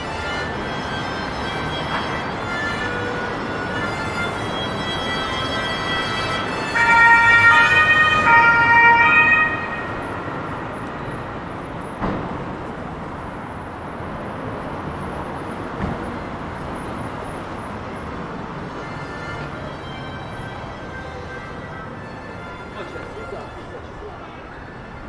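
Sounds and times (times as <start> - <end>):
two-tone siren: 0.0 - 10.6
city street noise: 0.0 - 25.0.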